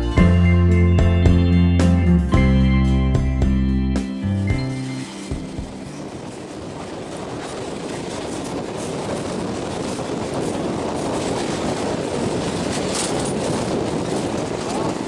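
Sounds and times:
train wheels rattling on track: 4.6s - 15.0s.

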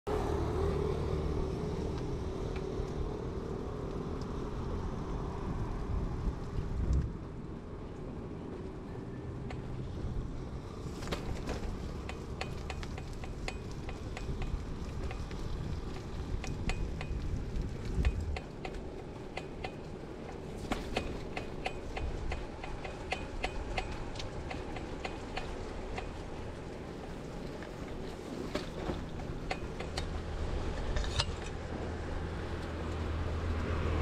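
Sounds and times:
light metallic ticks: 12.0s - 26.4s.

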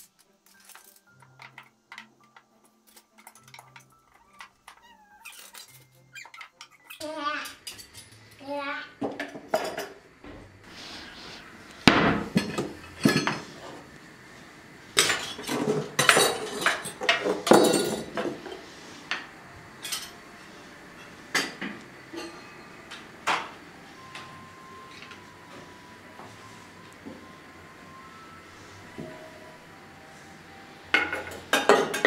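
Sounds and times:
utensils clattering in a drawer: 0.0s - 6.8s, 12.2s - 13.5s, 15.0s - 18.6s, 31.0s - 32.0s.

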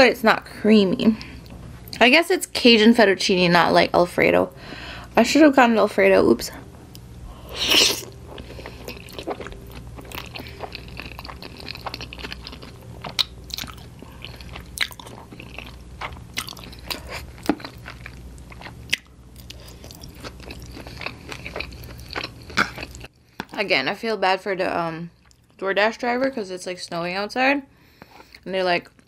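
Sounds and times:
close chewing of pasta: 6.9s - 23.6s.

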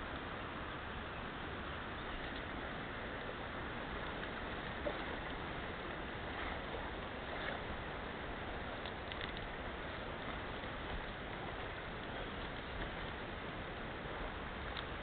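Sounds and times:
stream flowing over gravel: 1.4s - 15.0s.

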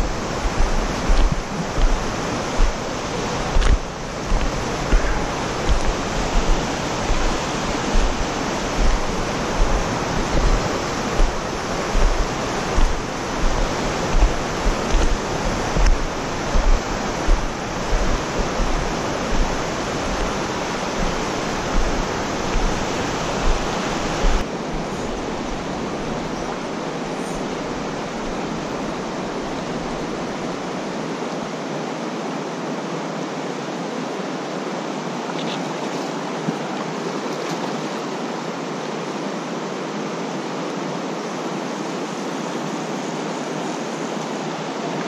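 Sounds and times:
footsteps on stony bank: 0.0s - 24.4s
rushing creek water: 0.0s - 45.0s.

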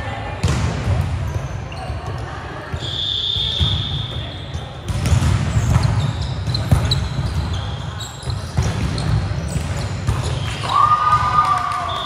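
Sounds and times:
shoe squeaks: 1.3s - 4.8s, 5.5s - 10.6s
basketball dribbling on court: 4.8s - 10.4s.

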